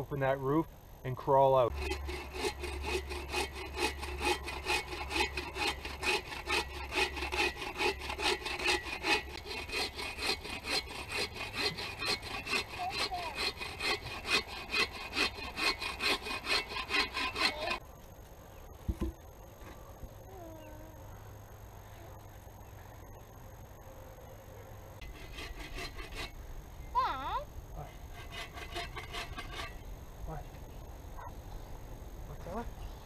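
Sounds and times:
bow saw cutting log: 1.7s - 17.8s, 25.0s - 26.4s, 27.9s - 29.8s.

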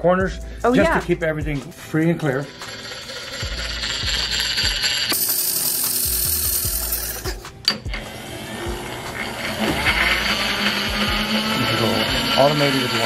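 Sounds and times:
machine feed motor running: 2.5s - 13.0s
motor whine: 6.1s - 13.0s.

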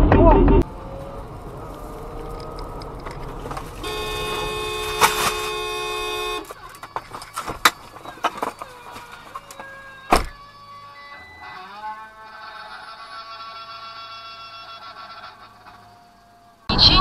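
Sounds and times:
debris scraping on road: 0.6s - 10.0s
car horn blaring: 3.6s - 7.9s, 10.1s - 16.2s.

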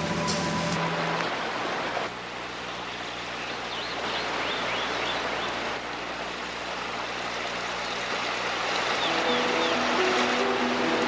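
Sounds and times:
stream flowing over rocks: 0.0s - 11.0s
bird chirping: 3.4s - 5.6s, 8.9s - 10.2s.

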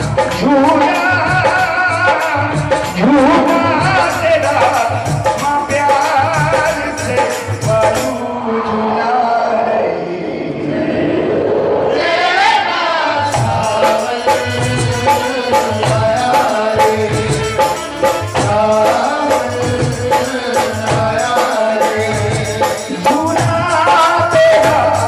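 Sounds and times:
jingling percussion: 13.4s - 25.0s
instrumental melody: 14.3s - 22.3s.

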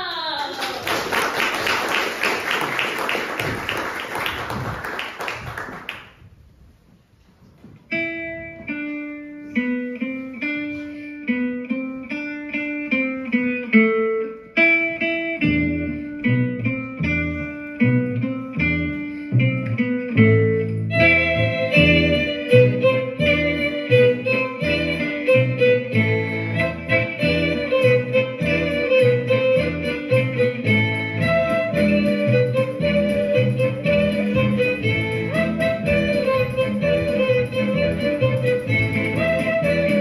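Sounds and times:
audience applause: 0.2s - 6.2s
plucked guitar-like music: 7.8s - 40.0s.

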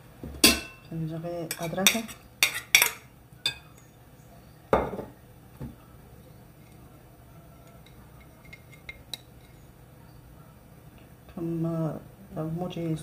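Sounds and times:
faint clinks of utensils: 0.4s - 3.9s, 7.6s - 9.7s
dishes knocking: 4.8s - 5.1s.

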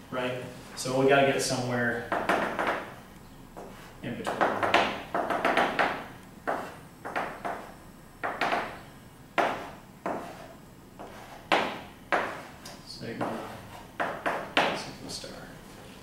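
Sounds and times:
chalk tapping and scraping on blackboard: 2.1s - 8.8s, 9.4s - 15.3s.

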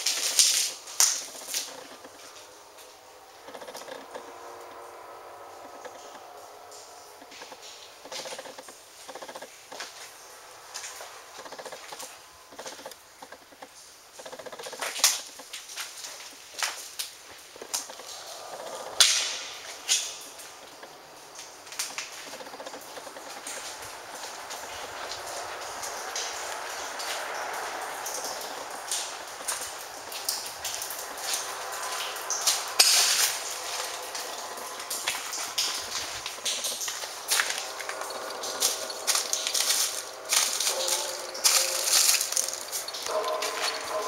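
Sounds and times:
footsteps on gritty concrete: 35.9s - 44.0s.

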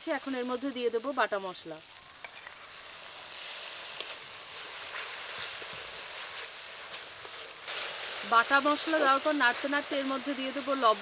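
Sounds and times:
spice paste sizzling in oil: 0.0s - 11.0s
metal spatula scraping: 2.2s - 8.2s.

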